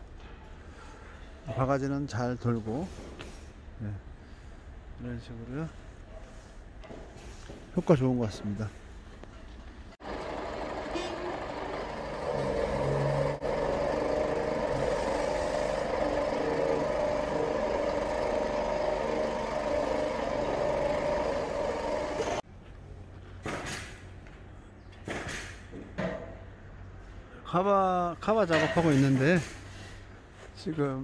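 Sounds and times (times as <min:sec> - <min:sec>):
engine and hydraulic hum: 0:08.8 - 0:25.8.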